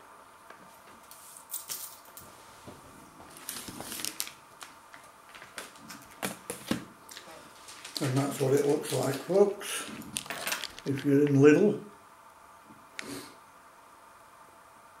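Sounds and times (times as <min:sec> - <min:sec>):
plastic packaging crinkling: 0:03.3 - 0:11.3.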